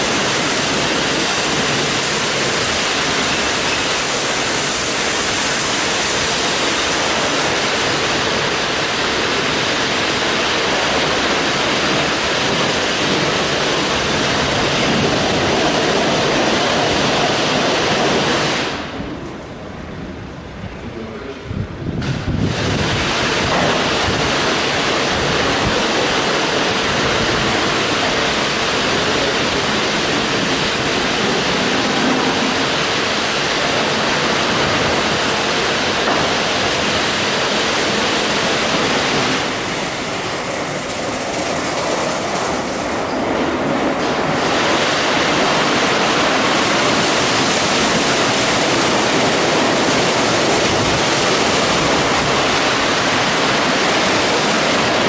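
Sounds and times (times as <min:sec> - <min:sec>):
car wash brushes and water spray: 0:00.0 - 0:19.0, 0:22.0 - 0:55.0.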